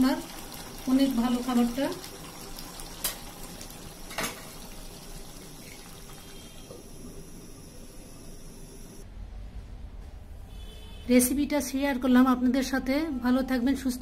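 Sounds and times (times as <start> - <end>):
curry simmering and bubbling: 0.0 - 7.7.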